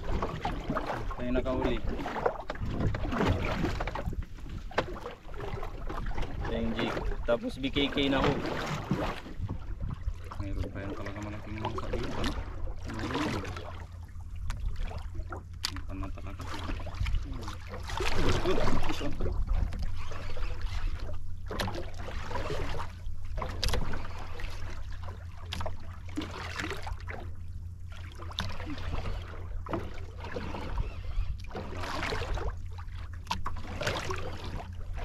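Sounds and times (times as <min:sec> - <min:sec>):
wind rumbling on microphone: 0:00.0 - 0:12.8, 0:16.8 - 0:21.5
water washing against boat hull: 0:00.0 - 0:35.0.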